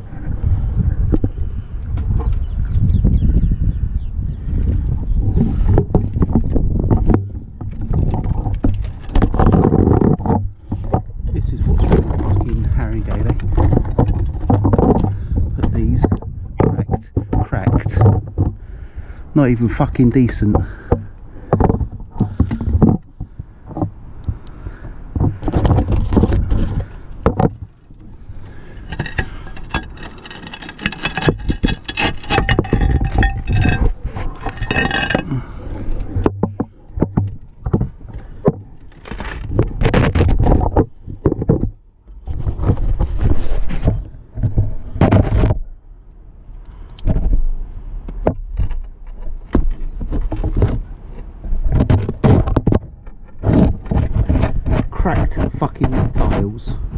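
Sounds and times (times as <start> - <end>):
microphone handling rumble: 0.0 - 45.8, 47.0 - 56.9
camera scraping against mesh and tiles: 28.0 - 36.3.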